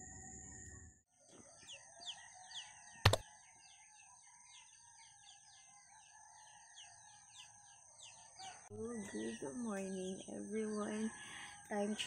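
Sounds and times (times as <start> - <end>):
sharp click: 3.0 - 3.2.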